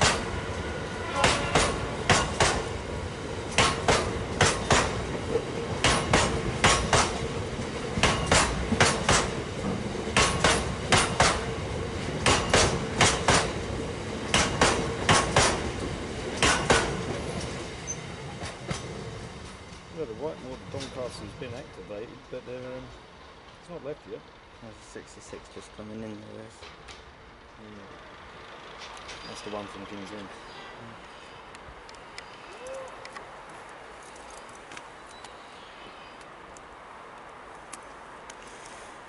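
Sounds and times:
train wheels clicking over rail joints: 0.0 - 0.6, 1.2 - 21.8, 26.2 - 27.4, 28.2 - 30.2
freight train rumble: 0.0 - 39.0.

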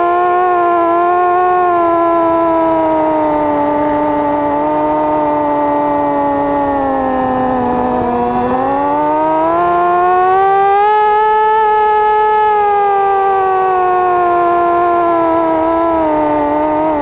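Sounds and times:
drone motors whining: 0.0 - 17.0.

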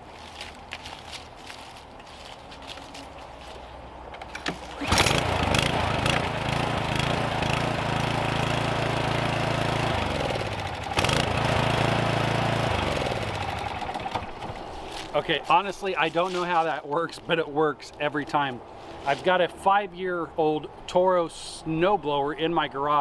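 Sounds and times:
lawn mower engine running: 4.2 - 15.1.

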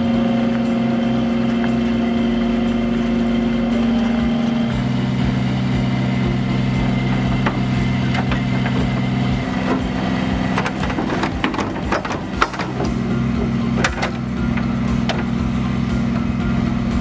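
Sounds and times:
steady low hum: 0.0 - 17.0
metal clinks and scrapes: 6.0 - 15.6.

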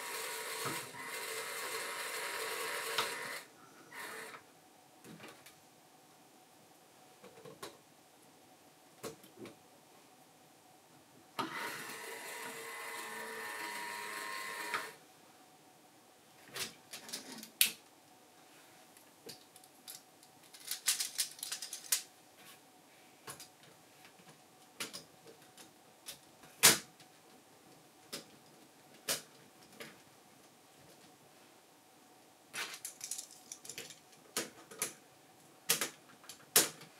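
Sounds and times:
toy electric motor whirring: 0.0 - 4.4, 11.5 - 15.0
plastic pieces clicking and tapping: 19.3 - 22.1, 32.6 - 35.0.

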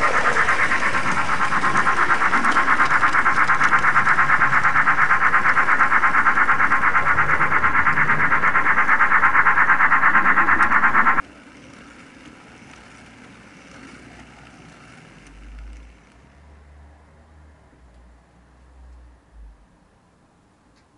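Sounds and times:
electronic steam engine chuffing: 0.0 - 11.2.

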